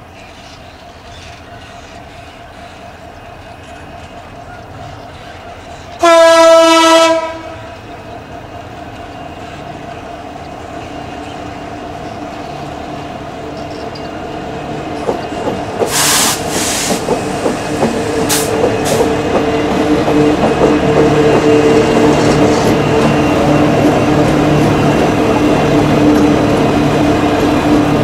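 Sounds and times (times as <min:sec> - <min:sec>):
diesel locomotive engines humming: 0:00.0 - 0:28.0
train horn blast: 0:06.0 - 0:07.8
short air hisses: 0:15.9 - 0:17.1.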